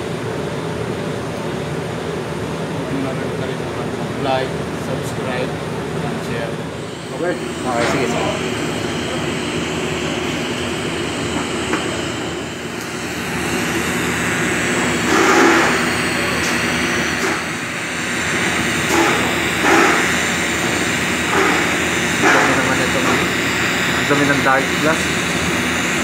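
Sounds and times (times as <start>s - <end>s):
welding machine hum: 1.4s - 26.0s
welding arc hissing: 6.3s - 26.0s.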